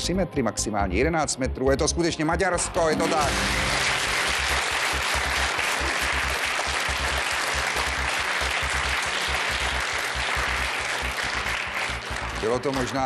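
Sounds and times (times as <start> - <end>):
game show music with low beat: 0.0 - 13.0
studio audience applauding: 2.8 - 13.0.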